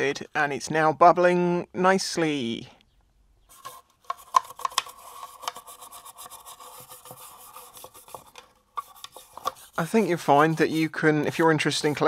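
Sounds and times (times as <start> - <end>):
bristle brush scrubbing metal: 5.0 - 12.0.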